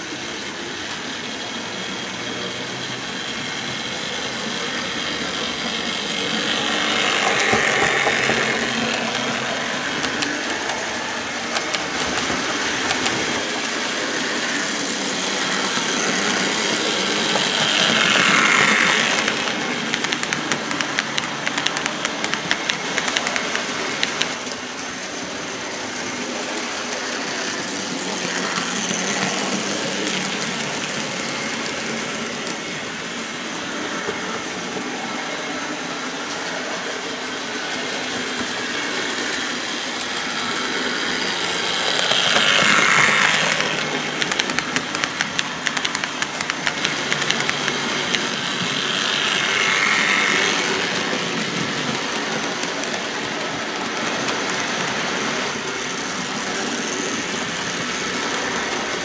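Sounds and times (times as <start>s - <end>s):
model train motor and wheels whirring: 0.0s - 59.0s
clicks over rail joints: 7.2s - 13.5s, 17.6s - 24.6s, 42.0s - 54.9s.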